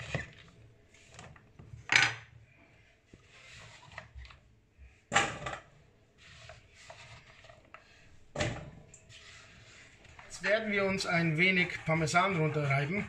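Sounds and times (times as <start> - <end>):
hand scraping cutting board: 3.1 - 4.4, 6.2 - 8.0, 9.1 - 13.0.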